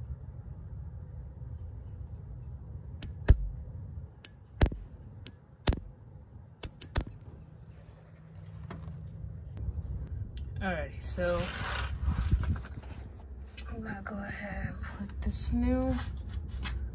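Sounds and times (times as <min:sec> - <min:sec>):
steady low hum: 0:00.0 - 0:16.9
solenoid clicking: 0:06.6 - 0:07.2.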